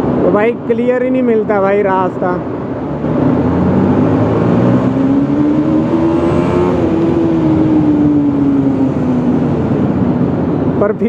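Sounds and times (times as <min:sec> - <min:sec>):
wind and road noise: 0:00.0 - 0:11.0
motorcycle engine revving: 0:02.7 - 0:10.5.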